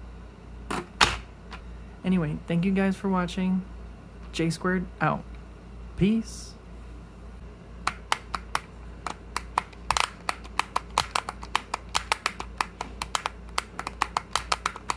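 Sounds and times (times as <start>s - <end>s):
sharp plastic clicks of puzzle: 7.9s - 14.9s.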